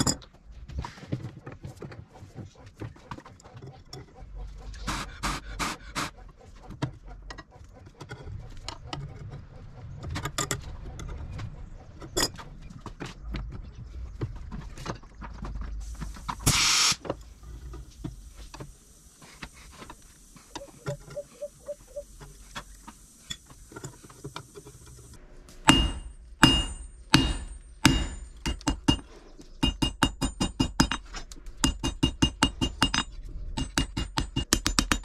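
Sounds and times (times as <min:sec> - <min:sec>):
metal clinks and knocks: 0:00.0 - 0:00.4, 0:25.7 - 0:35.0
hammer striking steel on anvil: 0:25.6 - 0:35.0.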